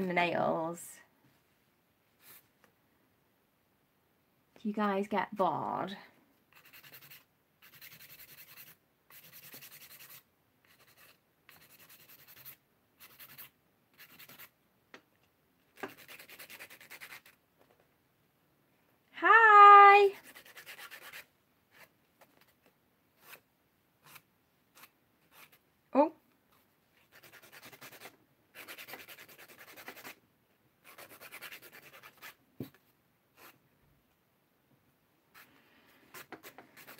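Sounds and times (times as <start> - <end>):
nail file rubbing nails: 6.5 - 14.6, 15.8 - 17.4, 20.2 - 22.6, 23.2 - 23.4, 24.0 - 25.6, 27.0 - 30.2, 30.8 - 32.4, 33.4 - 33.6, 36.1 - 36.9.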